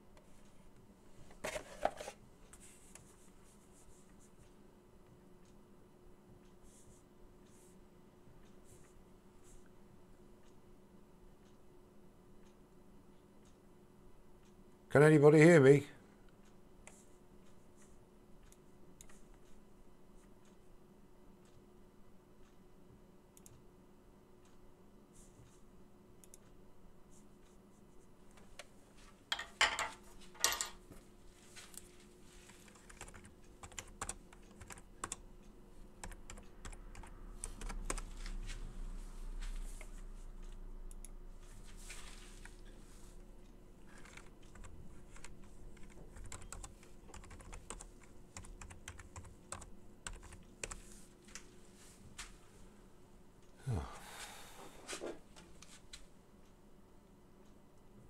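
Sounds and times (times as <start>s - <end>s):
faint steady hum: 0.0s - 58.0s
computer keyboard key clicks: 44.0s - 50.8s.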